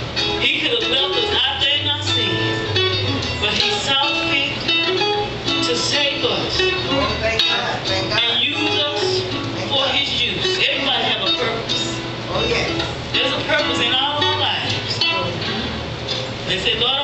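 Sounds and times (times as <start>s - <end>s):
music with sustained notes and bass: 0.0s - 17.0s
voice: 5.7s - 15.5s, 16.5s - 17.0s.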